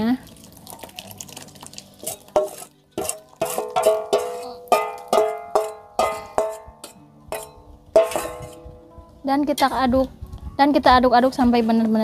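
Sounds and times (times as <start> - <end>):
spatula knocking metal saucepan: 2.0 - 8.7.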